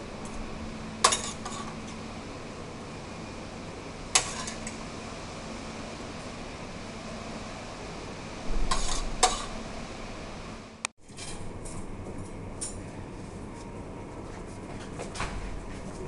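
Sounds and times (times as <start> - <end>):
steady background hum: 0.0 - 16.0
utensils clinking and scraping a pan: 1.0 - 1.8, 4.2 - 4.8, 8.7 - 9.5.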